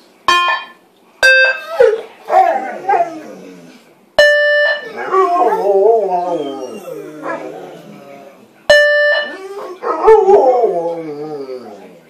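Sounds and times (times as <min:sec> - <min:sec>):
dogs howling: 0:01.6 - 0:03.8, 0:04.8 - 0:08.5, 0:09.2 - 0:12.0
short electronic beep tone: 0:04.2 - 0:04.8, 0:08.7 - 0:09.4.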